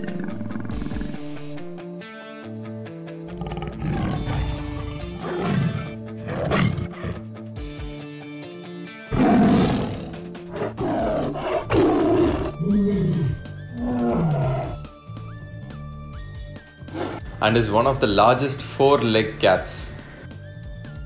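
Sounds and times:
big cat roaring and growling: 0.0s - 1.4s, 3.3s - 7.3s, 9.1s - 14.9s, 16.9s - 17.2s
background music with held tones: 0.0s - 21.0s.

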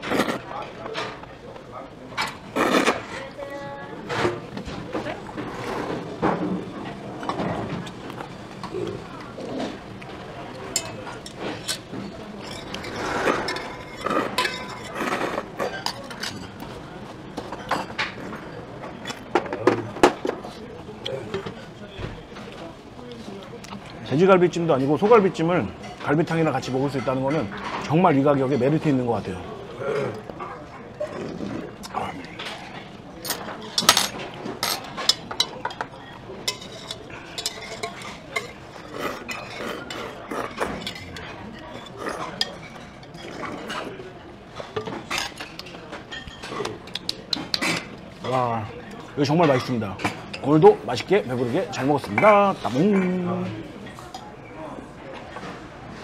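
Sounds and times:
utensils clinking on dishes: 4.0s - 20.6s, 31.8s - 54.4s.

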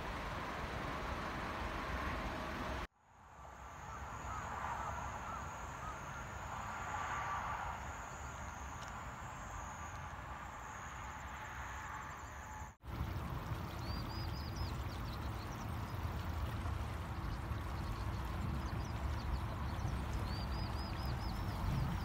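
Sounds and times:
road traffic rumble: 0.0s - 2.9s, 3.5s - 22.0s
insects droning: 3.3s - 12.8s.

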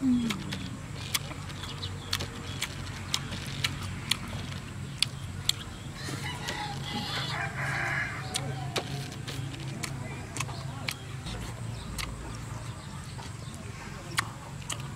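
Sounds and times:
chewing with wet mouth clicks: 0.1s - 5.8s, 8.0s - 14.9s
rooster crowing: 6.0s - 8.9s.

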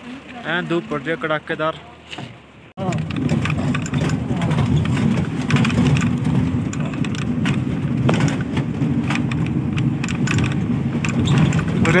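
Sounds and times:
engine and road rumble: 0.0s - 12.0s
short rattling clicks: 2.8s - 12.0s.

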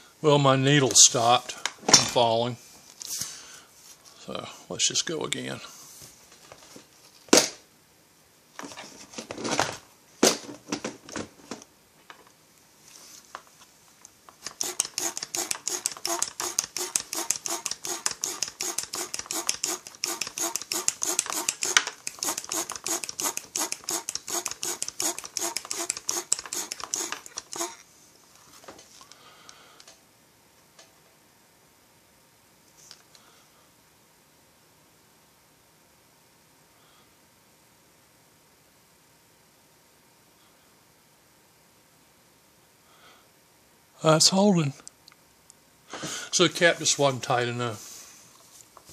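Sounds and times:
hand pump strokes: 14.4s - 27.8s.

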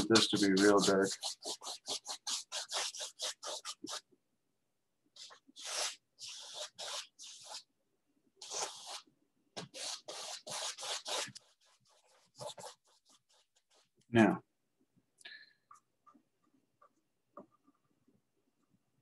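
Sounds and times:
paintbrush rubbing on canvas: 0.0s - 4.1s, 5.2s - 7.7s, 8.4s - 14.0s.

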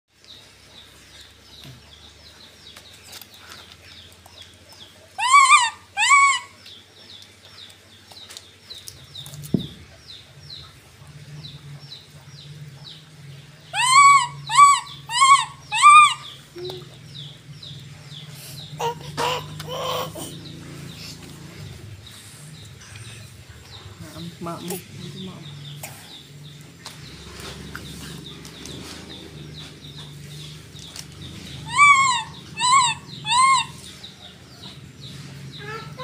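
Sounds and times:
baby monkey coo calls: 5.1s - 6.7s, 13.7s - 17.3s, 18.6s - 20.7s, 31.3s - 34.8s, 35.5s - 36.0s.

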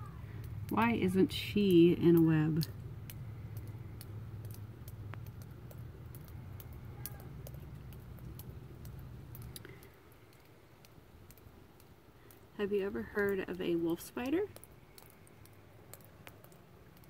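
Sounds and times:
faint low hum: 0.0s - 17.0s
light clicks: 14.2s - 17.0s.

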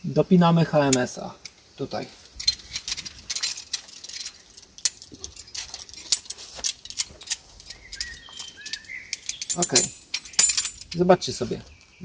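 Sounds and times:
metal carabiners clinking: 2.2s - 11.4s.

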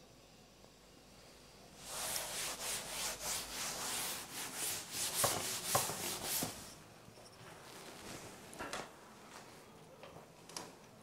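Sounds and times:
cloth scrubbing a chalkboard: 1.8s - 6.7s.

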